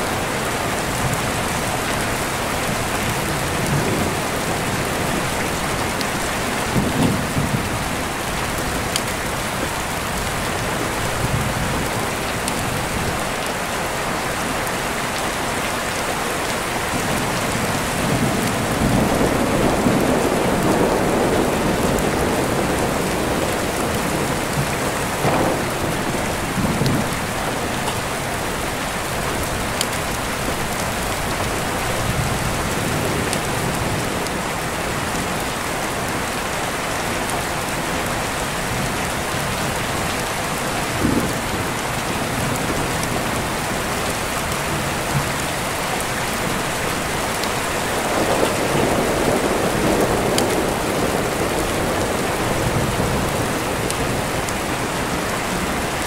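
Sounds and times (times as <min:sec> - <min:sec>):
steady rain falling: 0:00.0 - 0:56.0
deep rolling thunder: 0:17.1 - 0:29.6, 0:47.2 - 0:55.7.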